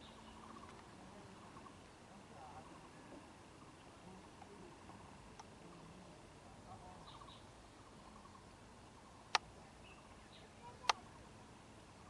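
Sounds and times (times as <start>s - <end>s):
small birds chirping: 0.0s - 12.0s
sharp clicks: 10.8s - 11.0s.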